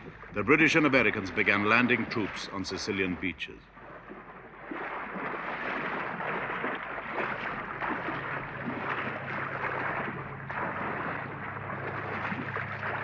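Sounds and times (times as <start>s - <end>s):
low engine drone: 0.0s - 13.0s
sea water rushing and splashing: 0.0s - 13.0s.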